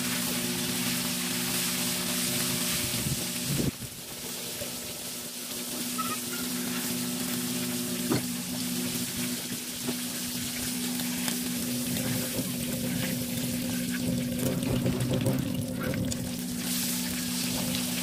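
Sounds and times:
low hum: 6.0 - 18.0.

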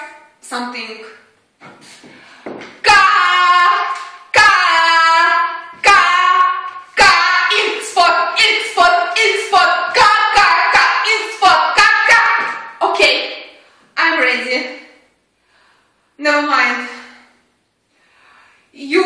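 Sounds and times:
woman screaming: 2.8 - 7.6.

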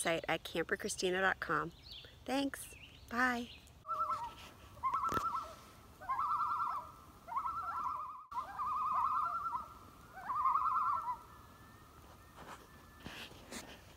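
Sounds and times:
loon tremolo call: 3.9 - 13.2.

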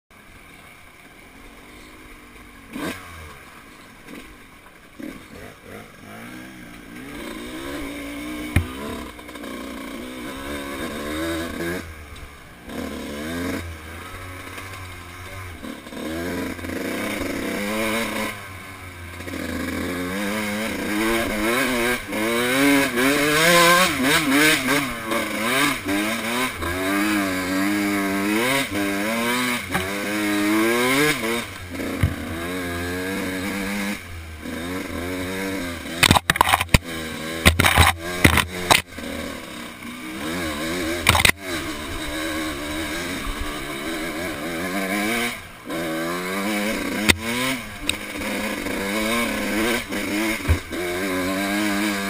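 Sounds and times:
dirt bike engine revving: 0.2 - 52.0
sharp knock: 8.5 - 8.8.

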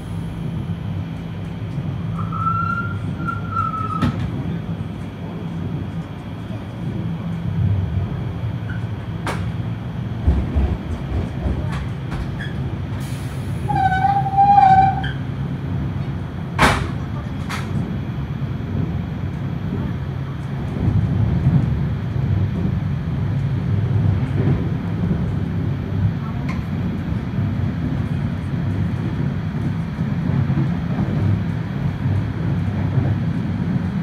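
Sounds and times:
train wheels rumbling on track: 0.0 - 34.0
low wavering squeal: 2.1 - 4.0
high squeal: 2.1 - 4.1.

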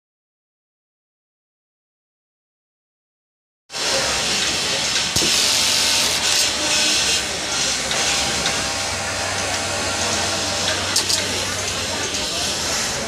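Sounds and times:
industrial sewing machines running: 3.8 - 13.0.

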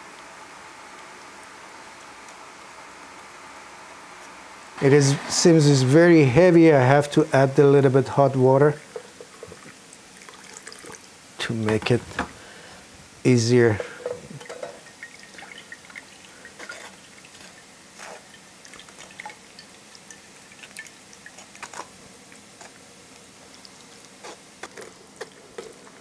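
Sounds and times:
juice dripping into glass bowl: 8.8 - 11.1, 13.8 - 22.8.

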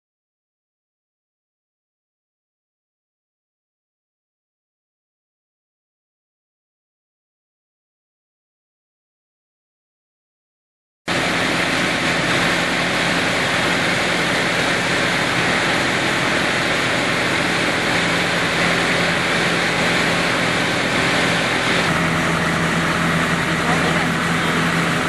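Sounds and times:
drill rig machine drone: 11.1 - 25.0
low hum: 11.1 - 25.0.

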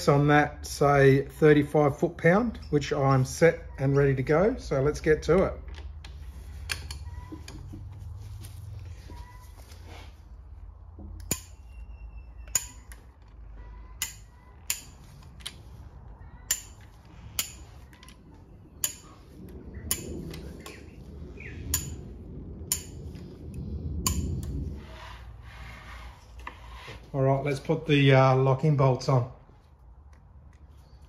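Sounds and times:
torque wrench clicking: 12.4 - 13.3, 14.0 - 15.6, 16.5 - 17.6
low handling rumble: 15.1 - 30.0.

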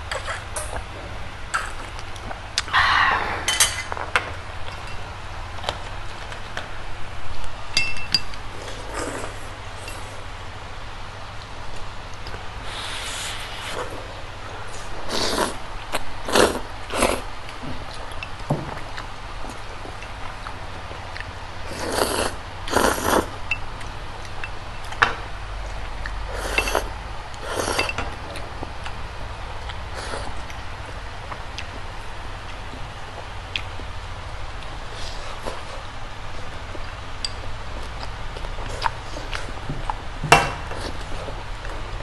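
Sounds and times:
utensils clinking against dishes: 7.8 - 8.4, 26.5 - 26.9, 27.6 - 28.2.

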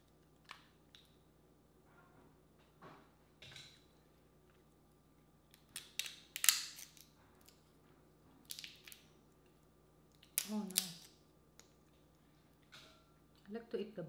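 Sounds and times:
crawfish shells cracking: 5.5 - 7.6, 8.4 - 9.1, 10.1 - 11.8.

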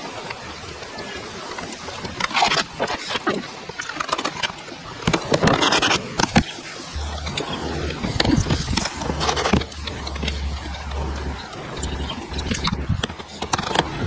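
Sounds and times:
steady low hum: 6.3 - 14.0.

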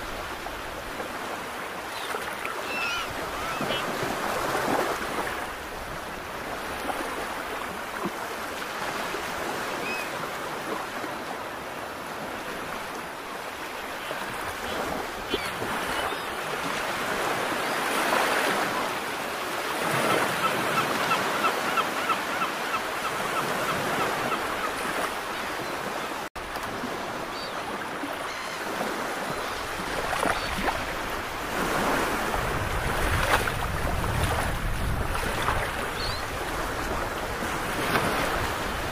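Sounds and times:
sea water washing against rocks: 29.8 - 36.0
wind rumbling on microphone: 32.0 - 38.9.

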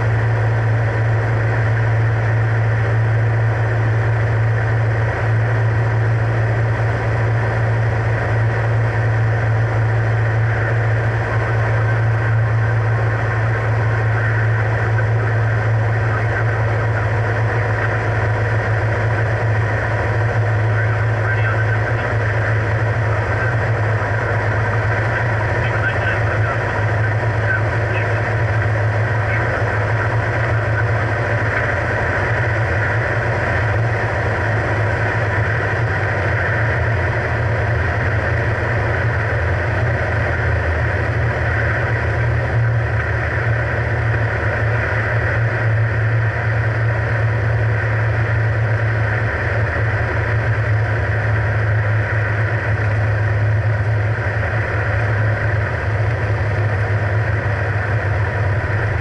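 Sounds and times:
airplane engine and propeller drone: 0.0 - 59.0.

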